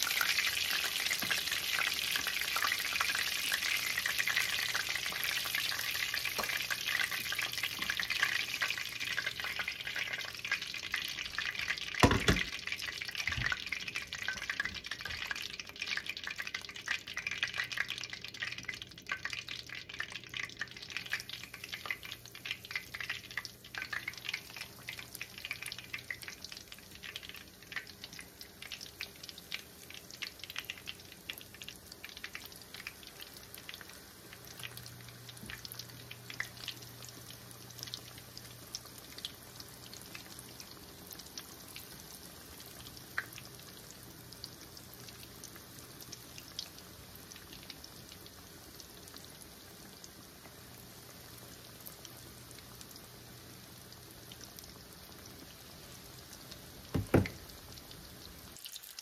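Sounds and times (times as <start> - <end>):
chicken deep-frying in oil: 0.0 - 59.0
low thump: 57.0 - 57.5.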